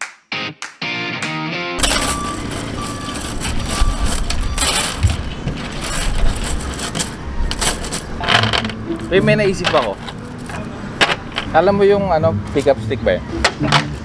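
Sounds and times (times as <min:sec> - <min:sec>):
wooden sticks clattering: 0:01.8 - 0:11.7.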